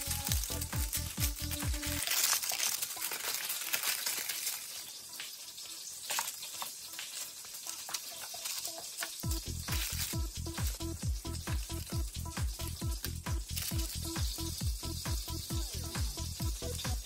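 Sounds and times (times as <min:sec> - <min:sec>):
background music with a beat: 0:00.0 - 0:02.0, 0:09.2 - 0:17.0
chicken wings sizzling in oil: 0:00.0 - 0:17.0.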